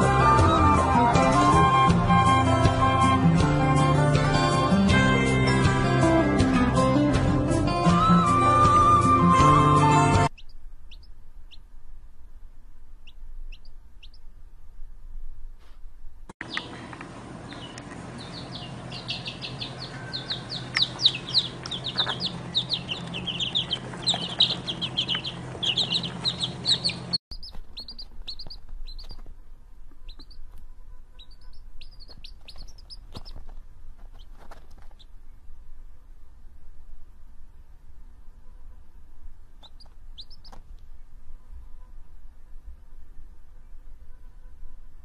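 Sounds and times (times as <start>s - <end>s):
low hum: 10.2s - 45.0s
chicks peeping: 10.3s - 11.6s, 13.0s - 14.2s, 16.4s - 35.1s, 39.6s - 40.6s.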